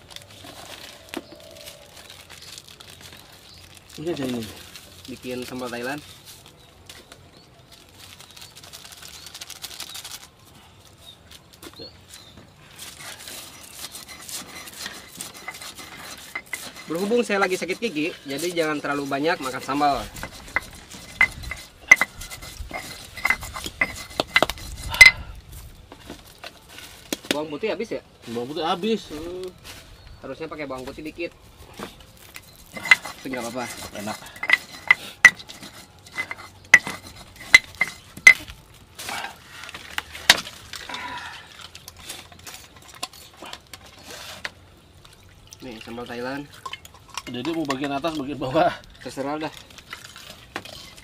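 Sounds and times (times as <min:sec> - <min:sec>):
stone pestle clinking in mortar: 0:32.7 - 0:38.5.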